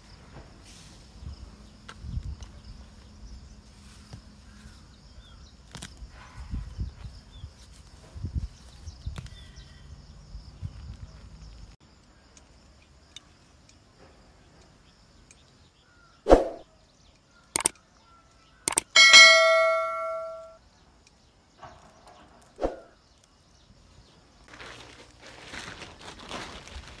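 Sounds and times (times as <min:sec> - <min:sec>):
short swoosh: 0:16.3 - 0:16.6
mouse clicks: 0:17.6 - 0:17.8, 0:18.7 - 0:19.0
notification bell ding: 0:18.8 - 0:20.6
rustling of plants being pulled: 0:24.3 - 0:27.0.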